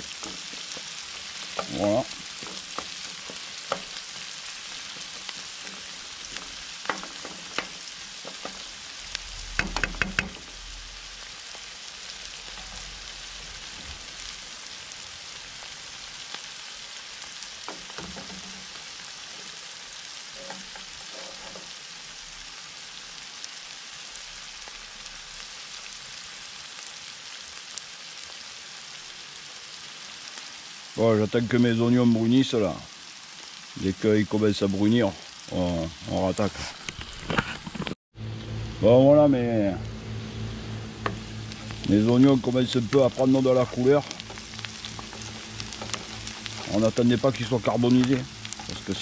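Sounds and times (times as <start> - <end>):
wooden spoon scraping a pan: 0.0 - 10.7, 12.1 - 14.4, 17.5 - 21.9, 36.4 - 37.9, 41.0 - 49.0
onions sizzling in a frying pan: 0.0 - 37.8, 39.4 - 49.0.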